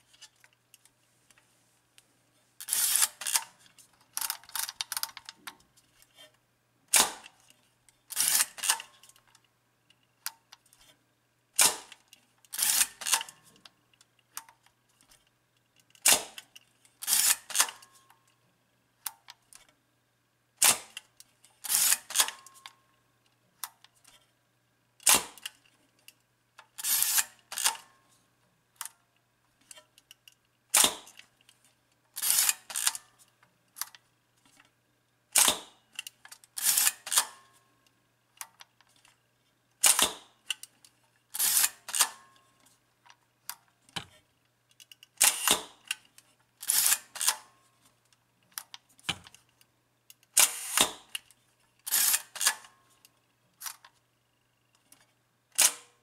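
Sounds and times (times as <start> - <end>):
advance lever ratchet: 2.6 - 3.5
camera shutter clack: 2.7 - 3.5, 8.1 - 9.0, 11.6 - 11.9, 12.6 - 13.4, 16.0 - 17.9, 21.7 - 22.7, 26.8 - 27.9, 32.2 - 33.1, 36.6 - 37.4, 39.8 - 40.3, 41.4 - 42.2, 45.2 - 45.8, 46.6 - 47.5, 50.4 - 51.0, 51.9 - 52.7, 55.6 - 55.9.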